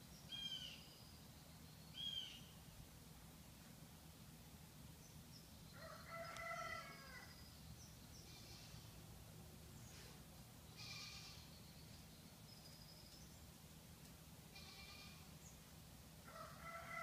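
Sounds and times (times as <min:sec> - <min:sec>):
short high animal calls: 0:10.8 - 0:11.5, 0:14.5 - 0:15.3.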